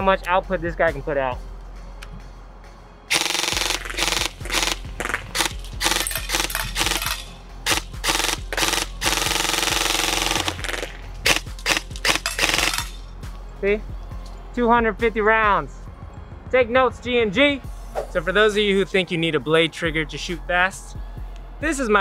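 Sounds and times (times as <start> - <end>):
airsoft rifle automatic fire: 3.1 - 12.9.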